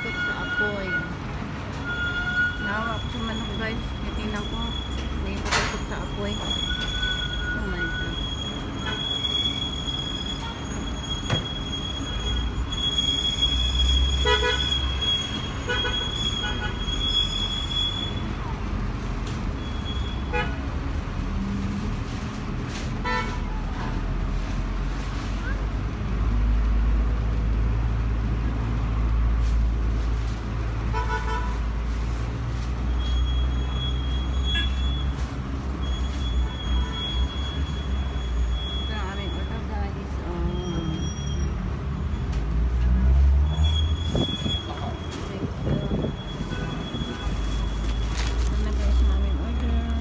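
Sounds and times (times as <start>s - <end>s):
rumble of passing vehicles: 0.0s - 50.0s
car horns honking: 14.1s - 16.9s.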